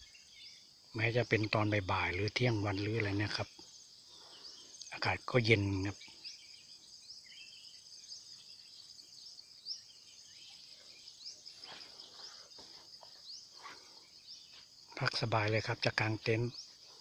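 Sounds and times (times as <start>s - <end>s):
insect chorus buzzing: 0.0s - 17.0s
rising insect chirps: 5.8s - 15.7s.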